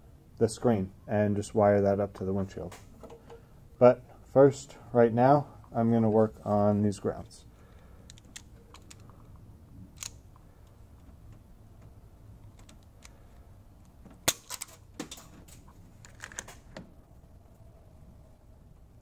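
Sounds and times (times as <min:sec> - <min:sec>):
wire stripper clicking and snapping: 0:09.9 - 0:13.2.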